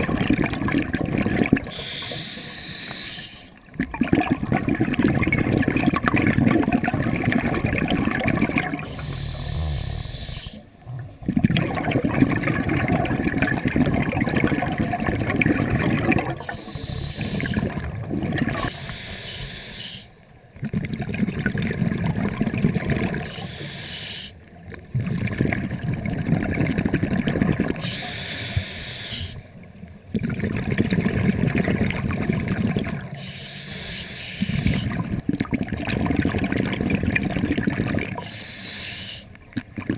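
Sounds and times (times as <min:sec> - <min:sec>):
bubbling exhalation: 0:00.0 - 0:01.8, 0:03.8 - 0:18.7
hissing inhalation: 0:01.7 - 0:03.5, 0:08.8 - 0:10.7, 0:16.4 - 0:17.7, 0:18.7 - 0:20.2, 0:23.3 - 0:24.4, 0:27.8 - 0:29.4, 0:33.2 - 0:35.0, 0:38.2 - 0:39.3.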